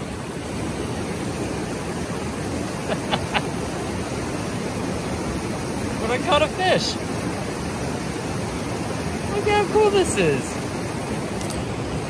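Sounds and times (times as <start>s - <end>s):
river water rushing: 0.0s - 12.0s.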